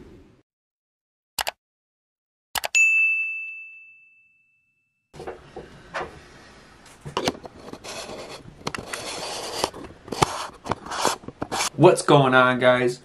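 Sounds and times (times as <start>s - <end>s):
bell-like ding: 2.8s - 5.0s
handling rubbing and rustling: 6.9s - 11.8s.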